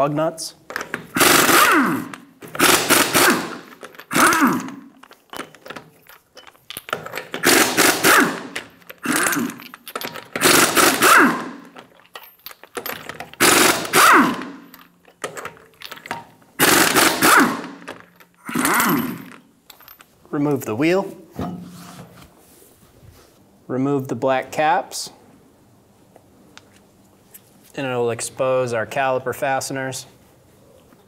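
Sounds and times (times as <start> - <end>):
pneumatic impact wrench hammering: 0.7 - 11.9, 12.5 - 19.4.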